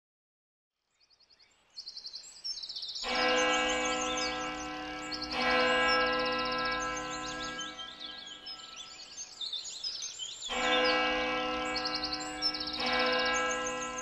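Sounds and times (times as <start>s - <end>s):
birds chirping and trilling: 0.9s - 14.0s
sustained musical chord: 3.4s - 8.6s, 10.6s - 14.0s.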